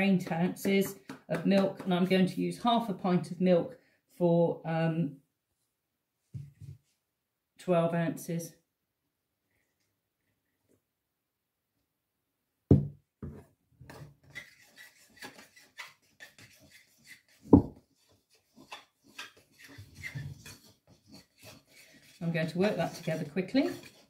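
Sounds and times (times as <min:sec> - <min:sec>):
utensil scraping ceramic bowl: 0:14.2 - 0:24.0.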